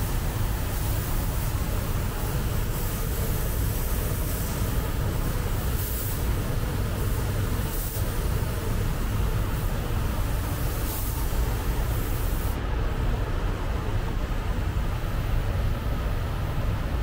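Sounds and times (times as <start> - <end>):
spray gun hissing: 0.0 - 12.6
low rumble of air and machinery: 0.0 - 17.0.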